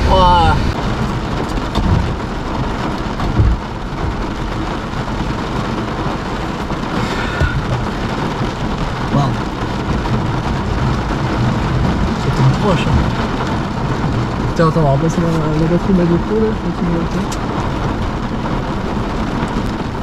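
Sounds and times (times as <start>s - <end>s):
heavy rain on car roof: 0.0s - 20.0s
low thunder rumbling: 0.0s - 20.0s
sudden low thump: 1.7s - 2.2s, 3.2s - 4.4s, 7.3s - 7.9s, 9.7s - 14.3s.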